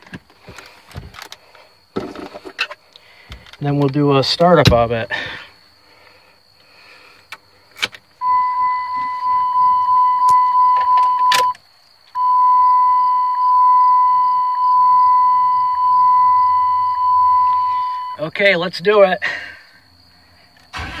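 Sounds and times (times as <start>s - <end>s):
car warning chime beeping: 8.2s - 11.6s, 12.2s - 18.4s.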